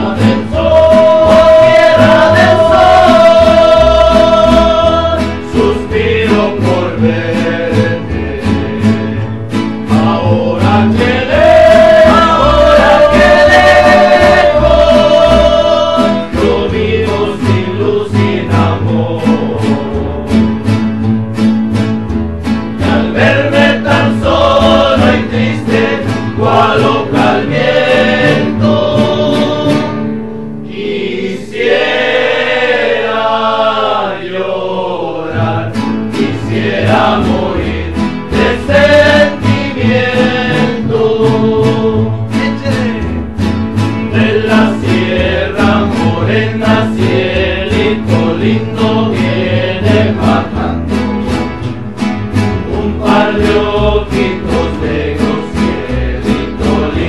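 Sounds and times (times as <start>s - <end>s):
men singing together: 0.0s - 20.8s, 22.8s - 30.1s, 30.7s - 51.8s, 52.4s - 57.0s
double bass: 0.0s - 30.8s, 35.2s - 57.0s
acoustic guitars strumming: 0.0s - 57.0s.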